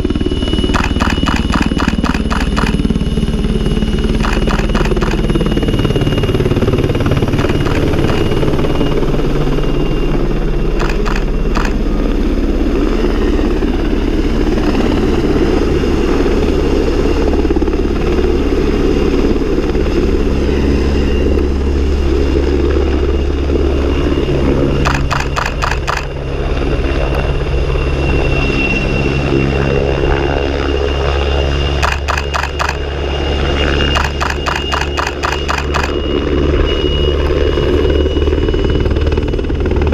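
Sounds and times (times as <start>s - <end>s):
high whine: 0.0s - 12.1s
helicopter rotor and engine: 0.0s - 39.9s
rapid rotor thumps: 0.8s - 2.8s, 4.2s - 5.4s, 7.4s - 8.4s, 10.8s - 11.8s, 24.9s - 26.1s, 31.8s - 32.8s, 34.0s - 36.0s.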